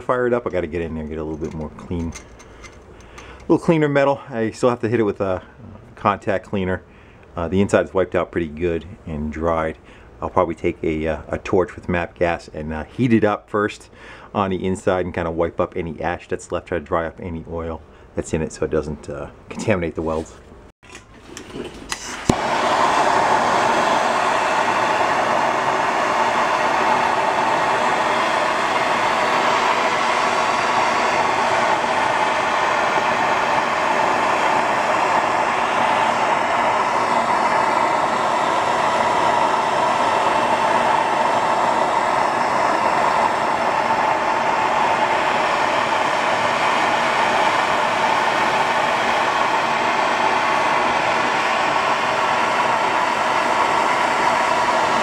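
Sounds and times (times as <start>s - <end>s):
gas torch flame hissing: 0.3s - 3.5s, 21.9s - 55.0s.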